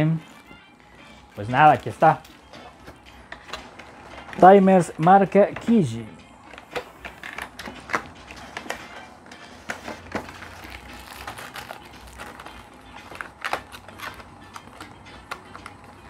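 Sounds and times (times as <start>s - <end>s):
plastic packaging crinkling: 9.6s - 15.9s.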